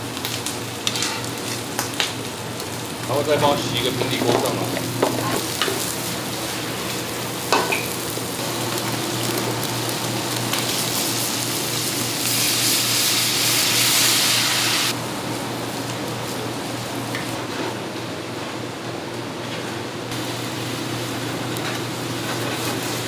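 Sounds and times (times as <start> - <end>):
food sizzling in a frying pan: 0.0 - 15.0, 20.1 - 23.0
low kitchen hum: 0.0 - 23.0.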